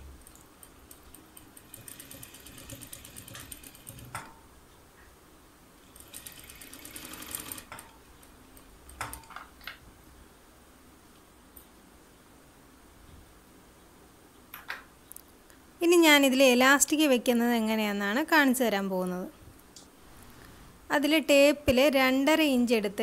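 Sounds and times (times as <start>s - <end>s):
sewing machine stitching: 0.9s - 4.3s, 5.8s - 7.9s.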